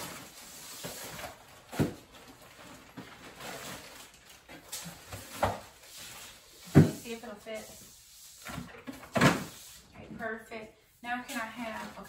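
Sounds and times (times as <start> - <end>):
plastic rustling: 0.0 - 9.9.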